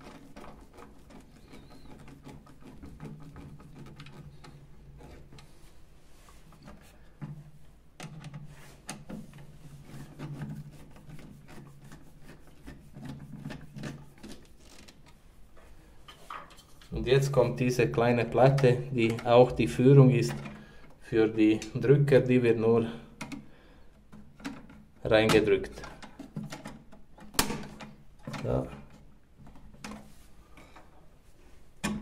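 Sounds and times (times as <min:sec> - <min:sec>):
plastic parts clicking and rubbing: 0:00.0 - 0:15.2, 0:18.2 - 0:21.8, 0:23.1 - 0:31.1.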